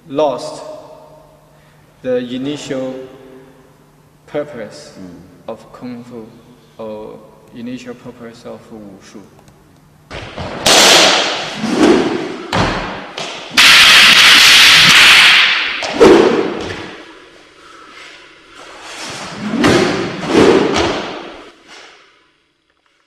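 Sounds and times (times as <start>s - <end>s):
loud rushing noise: 10.7s - 17.0s, 18.8s - 21.5s.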